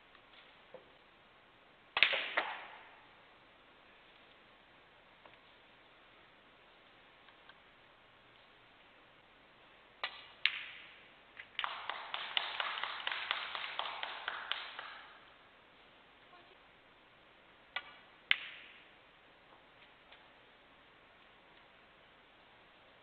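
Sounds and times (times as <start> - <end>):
audience applause: 11.6 - 15.1.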